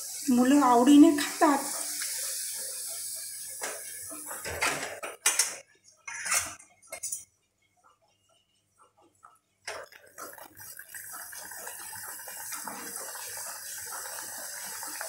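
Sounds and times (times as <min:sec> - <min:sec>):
hot oil sizzling: 0:00.0 - 0:05.0, 0:09.8 - 0:15.0
metal spoon clinking on pan: 0:06.1 - 0:07.3.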